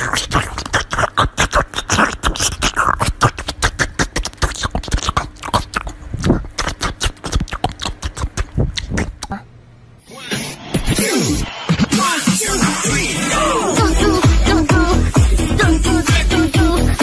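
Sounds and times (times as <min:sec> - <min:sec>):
dog crunching watermelon: 0:00.0 - 0:09.4.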